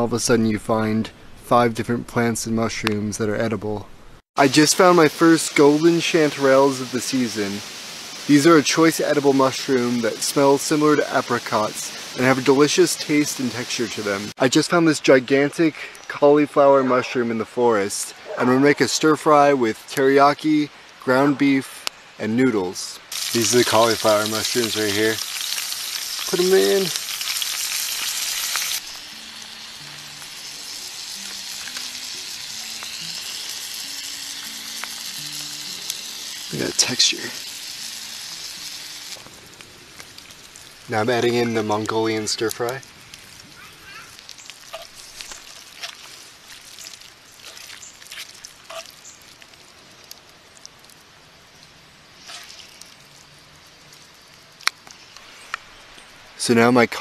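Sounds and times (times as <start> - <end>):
faint steady hiss: 0.0 - 57.0
meat sizzling in a skillet: 4.4 - 14.4, 23.0 - 56.3
spoon scraping a skillet: 44.6 - 49.2, 52.2 - 52.8.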